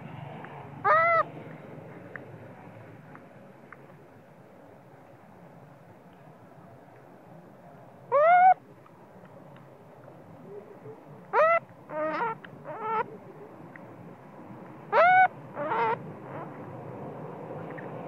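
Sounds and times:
baby monkey crying: 0:11.3 - 0:13.1.

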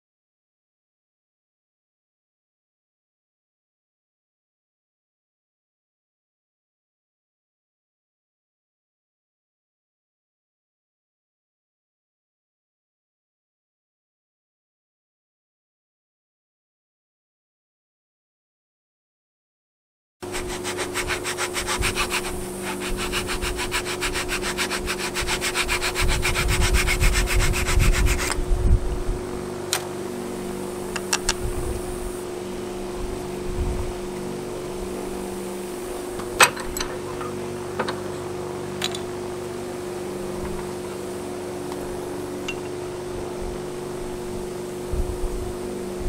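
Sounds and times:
sandpaper rubbing: 0:20.2 - 0:28.4
steady low hum: 0:20.2 - 0:46.0
tools clicking and tapping: 0:30.9 - 0:31.4.

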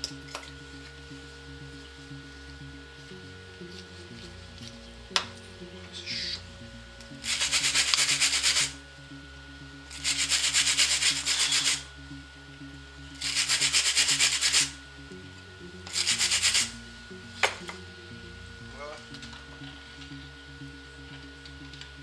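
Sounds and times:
wire brush scrubbing steel: 0:07.2 - 0:08.8, 0:09.9 - 0:11.9, 0:13.2 - 0:14.8, 0:15.9 - 0:16.8.

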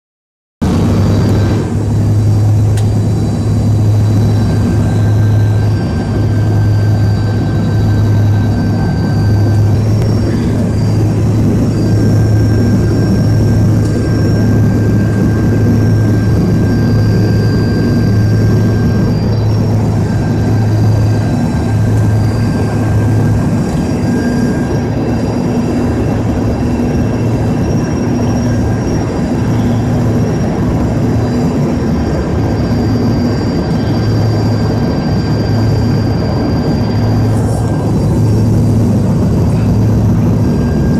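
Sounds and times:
constant low hum: 0:00.6 - 0:40.9
jet engines droning: 0:00.6 - 0:40.9
rushing air: 0:00.6 - 0:40.9.

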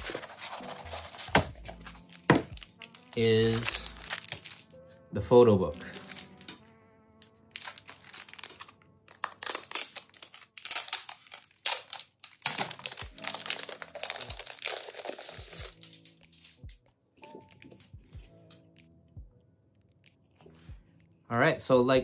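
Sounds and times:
plastic wrapping crinkling: 0:00.0 - 0:04.8, 0:05.7 - 0:06.6, 0:07.5 - 0:16.8
soft background music: 0:00.0 - 0:22.0.

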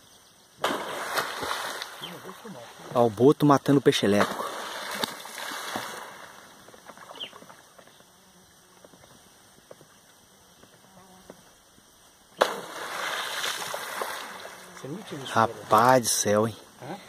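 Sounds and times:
sharp splash: 0:00.6 - 0:03.0, 0:04.1 - 0:07.2, 0:12.4 - 0:15.9
rush of water: 0:00.6 - 0:07.6, 0:12.4 - 0:16.9.

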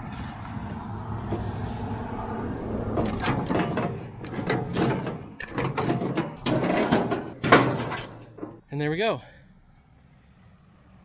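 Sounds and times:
tractor diesel engine running: 0:00.0 - 0:08.8
metal clanks and knocks: 0:01.2 - 0:08.7.

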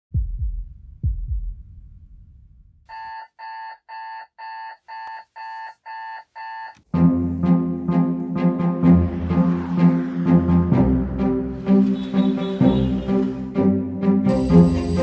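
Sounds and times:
low double thumps: 0:00.1 - 0:02.7
alarm clock beeping: 0:02.9 - 0:06.8, 0:14.3 - 0:15.0.

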